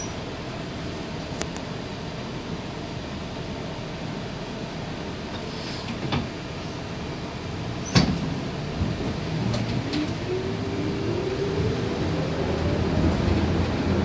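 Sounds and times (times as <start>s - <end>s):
streetcar rumbling: 0.0s - 14.0s.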